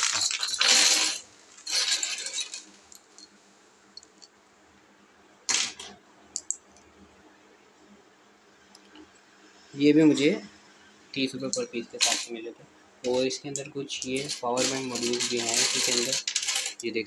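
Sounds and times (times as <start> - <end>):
circuit boards clattering: 0.0 - 2.8, 5.5 - 6.5, 11.4 - 12.4, 13.0 - 17.0.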